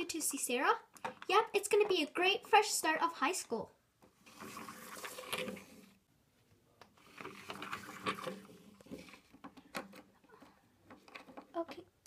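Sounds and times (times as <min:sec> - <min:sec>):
toy car wheels rolling on table: 0:04.2 - 0:06.0, 0:07.0 - 0:10.0.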